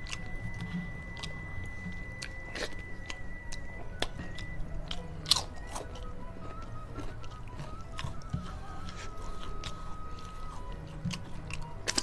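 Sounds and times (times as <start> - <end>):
person chewing food: 0.0 - 12.0
faint high tone: 8.2 - 10.7
mouth clicks and smacks: 9.6 - 12.0.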